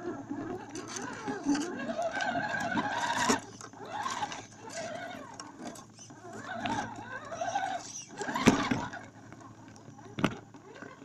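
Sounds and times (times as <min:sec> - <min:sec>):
electric motor and gearbox whining: 0:00.0 - 0:11.0.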